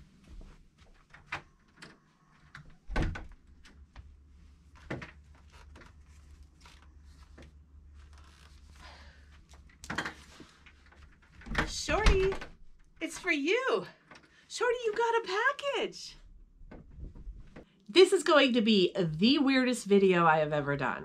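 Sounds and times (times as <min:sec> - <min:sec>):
door unlatching and opening: 0:01.1 - 0:03.4.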